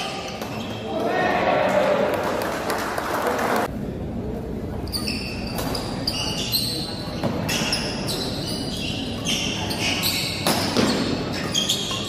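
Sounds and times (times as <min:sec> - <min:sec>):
murmur of spectators: 0:00.0 - 0:12.0
shoes squeaking on court: 0:00.1 - 0:00.9, 0:04.8 - 0:12.0.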